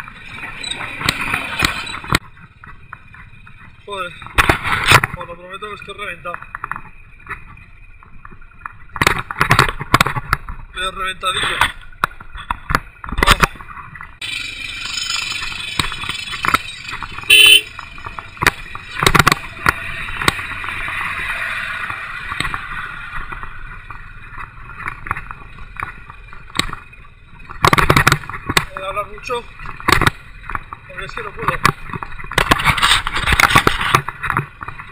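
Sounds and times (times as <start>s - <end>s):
motorcycle engine: 0.0s - 11.0s, 11.6s - 34.9s
knocks and rattles: 11.6s - 21.2s, 21.8s - 34.9s
horn toot: 17.2s - 17.8s.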